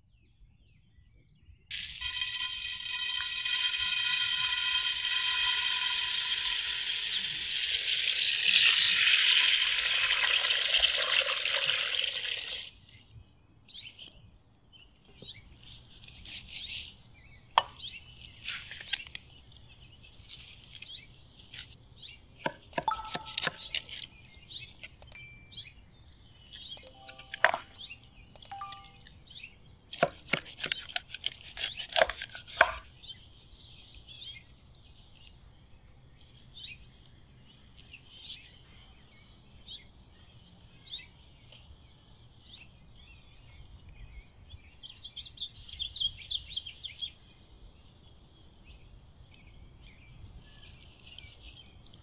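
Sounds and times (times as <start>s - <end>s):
loud steady hiss with held tones: 1.8s - 10.8s
birds chirping: 22.0s - 33.2s
knife cutting chicken on wooden board: 22.4s - 24.0s, 29.9s - 32.9s.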